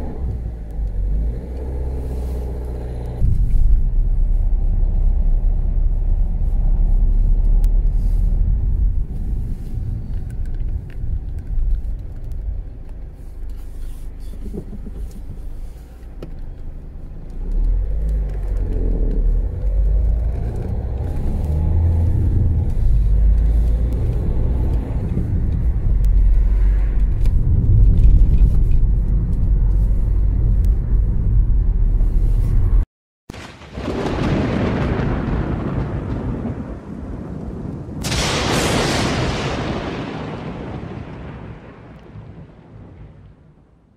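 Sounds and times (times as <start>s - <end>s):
car engine and road rumble: 0.0s - 33.9s.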